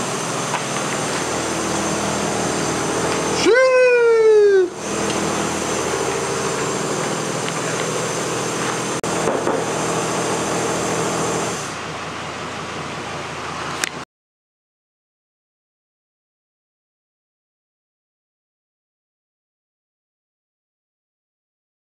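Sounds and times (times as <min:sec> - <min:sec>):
machine hissing and humming: 0:00.0 - 0:13.8.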